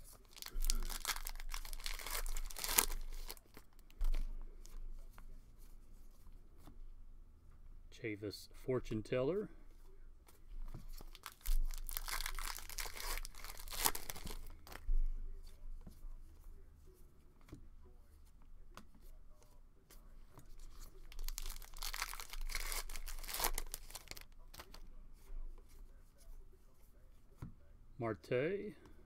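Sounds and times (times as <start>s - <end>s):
card pack wrappers tearing: 0.0s - 3.6s, 11.0s - 14.8s, 21.1s - 24.8s
cards being handled: 0.0s - 5.3s, 10.3s - 16.0s, 18.7s - 24.8s.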